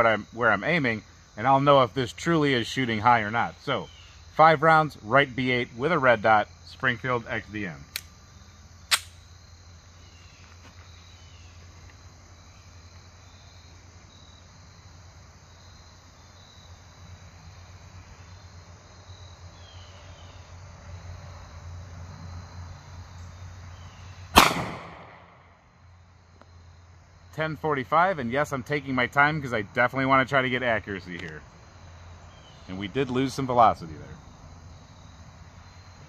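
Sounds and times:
crickets chirping: 0:00.0 - 0:36.0
pistol shot: 0:24.3 - 0:25.5.

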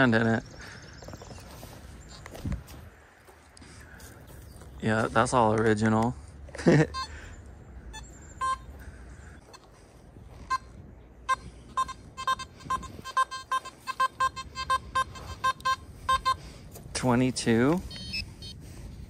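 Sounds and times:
metal detector beeping: 0:06.8 - 0:07.3, 0:07.9 - 0:08.7, 0:10.4 - 0:17.1, 0:17.7 - 0:18.6.

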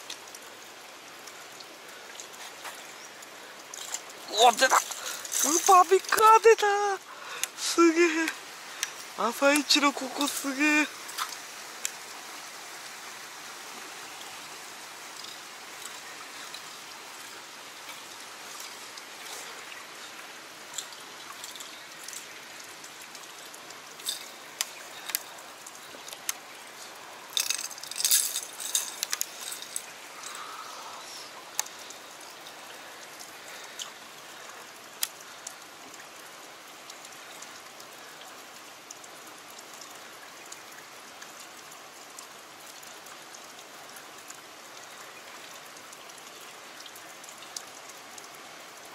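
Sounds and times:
stream trickling over rocks: 0:00.0 - 0:48.9.

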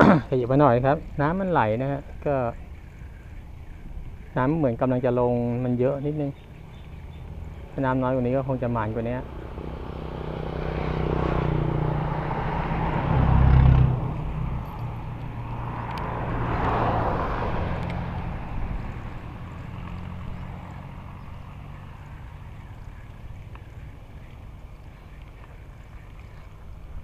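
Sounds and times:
vehicle engine hum: 0:00.0 - 0:27.0
vehicle tyre noise: 0:00.0 - 0:27.0.

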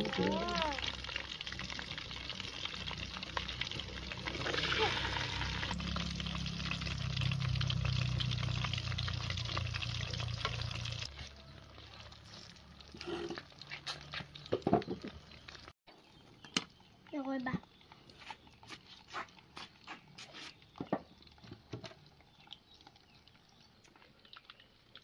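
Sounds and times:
food sizzling in a pan: 0:00.0 - 0:15.0.

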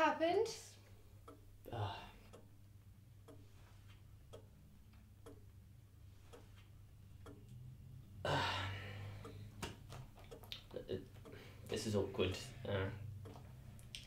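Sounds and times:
clock ticking: 0:00.0 - 0:14.0
person sighing: 0:01.7 - 0:02.2, 0:08.2 - 0:09.2.

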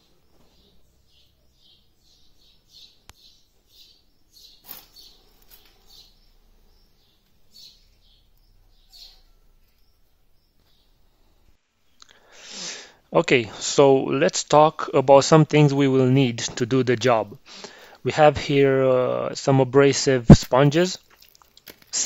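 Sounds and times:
faint bird chirping: 0:00.0 - 0:12.3.

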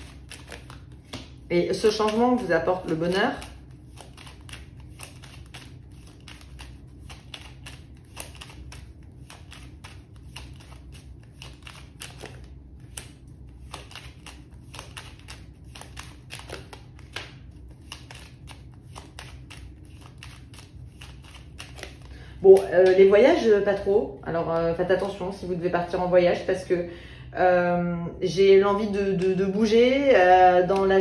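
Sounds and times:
paper cards being shuffled: 0:00.0 - 0:23.4
faint low hum: 0:00.0 - 0:31.0.

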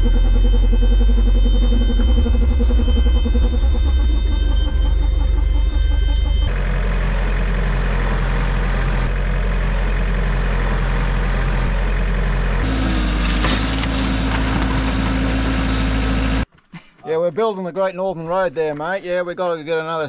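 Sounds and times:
heavy vehicle engine running: 0:00.0 - 0:16.5
rough gritty noise: 0:12.6 - 0:16.4.

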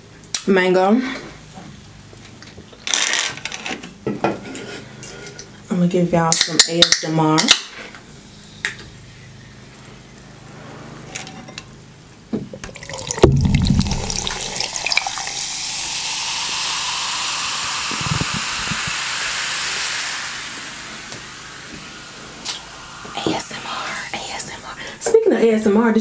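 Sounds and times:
fizzy drink pouring and splashing: 0:12.6 - 0:24.9.

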